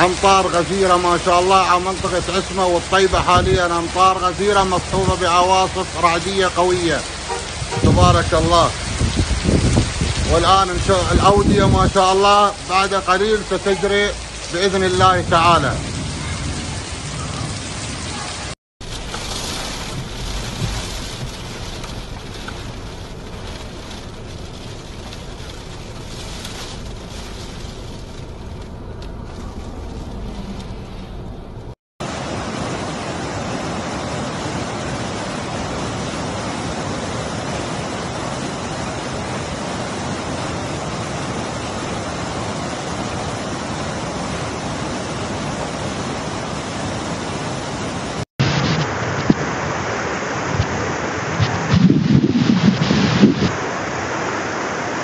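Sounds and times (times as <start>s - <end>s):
flood water rushing over rocks: 0.0s - 55.0s
rain falling: 0.0s - 55.0s
road noise inside moving car: 18.8s - 31.8s.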